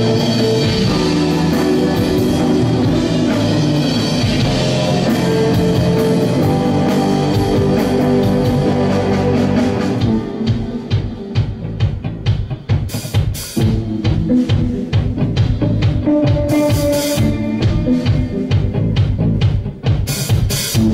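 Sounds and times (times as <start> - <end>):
bass guitar: 0.0 - 20.9
drum kit: 0.0 - 20.9
electric guitars: 0.0 - 20.9.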